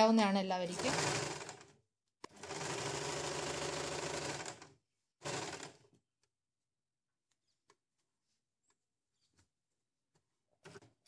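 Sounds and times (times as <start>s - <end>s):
sewing machine stitching: 0.6s - 6.0s.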